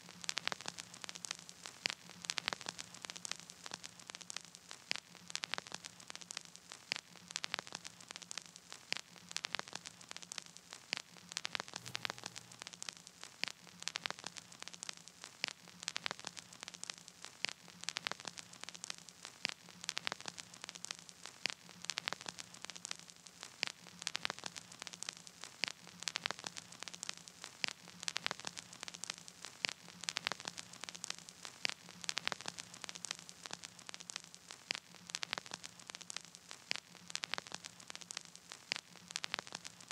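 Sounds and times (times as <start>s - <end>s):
crackling static clicks: 0.0s - 39.9s
faint hiss: 0.0s - 39.9s.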